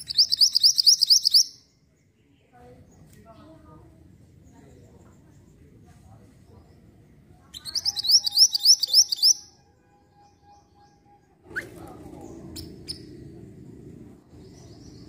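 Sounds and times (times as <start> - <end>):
bird chirping: 0.0 - 3.1, 6.5 - 15.0
low rumble: 11.4 - 15.0.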